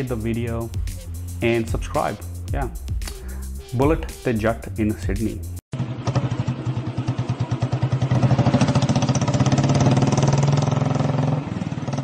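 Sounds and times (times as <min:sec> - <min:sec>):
motorcycle engine idling: 0:05.7 - 0:12.0.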